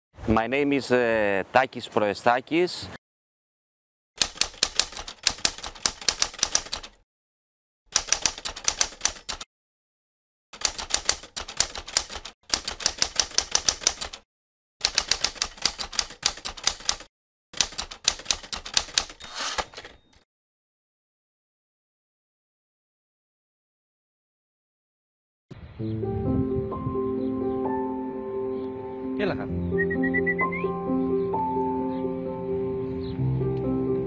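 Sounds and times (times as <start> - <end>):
typewriter key strikes: 8.0 - 9.4.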